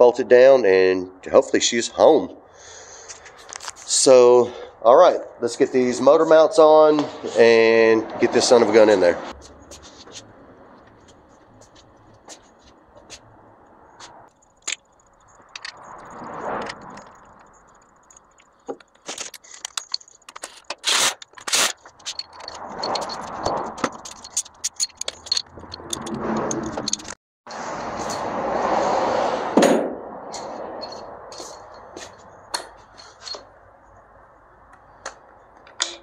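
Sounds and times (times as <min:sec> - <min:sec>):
rustling noise: 0:07.0 - 0:29.6, 0:30.2 - 0:33.5
metal tools and bolts clinking: 0:14.3 - 0:27.2, 0:30.3 - 0:33.6, 0:35.6 - 0:36.0.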